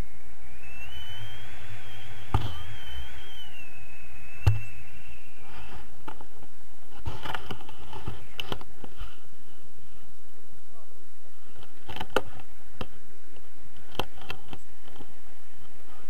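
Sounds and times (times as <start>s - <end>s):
wavering high tone: 0.0s - 5.5s
wind rushing over microphone: 0.0s - 16.0s.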